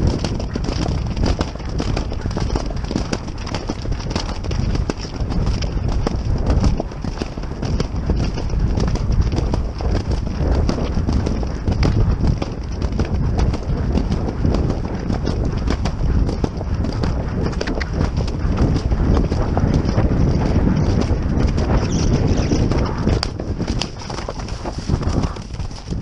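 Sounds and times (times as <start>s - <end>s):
horse hoofbeats galloping: 0.0s - 26.0s
wind rushing on microphone: 0.0s - 26.0s.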